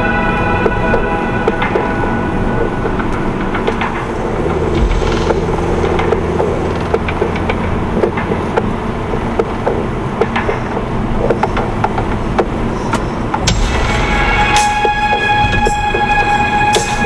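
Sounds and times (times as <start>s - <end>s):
car engine and road noise: 0.0s - 17.0s
knocks and rattles: 2.6s - 14.9s.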